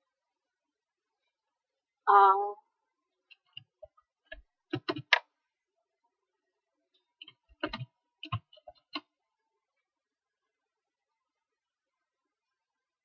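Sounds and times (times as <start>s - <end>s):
computer keyboard keystrokes: 4.3s - 5.3s, 7.2s - 9.1s.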